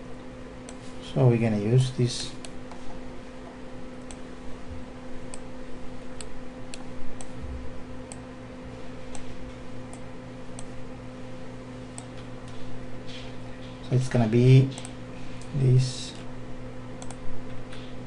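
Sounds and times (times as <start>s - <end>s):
low electrical hum: 0.0s - 18.0s
computer mouse clicking: 17.0s - 17.8s.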